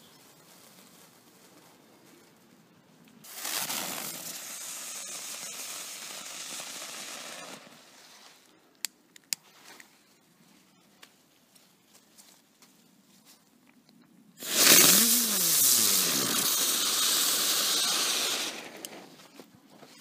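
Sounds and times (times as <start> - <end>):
firework hissing: 3.2 - 8.5, 14.4 - 19.2.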